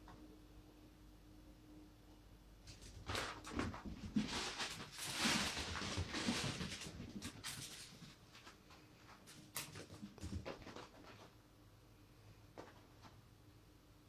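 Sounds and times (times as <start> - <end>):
scurrying paws: 2.7 - 11.4
rustling fabric: 2.8 - 11.4.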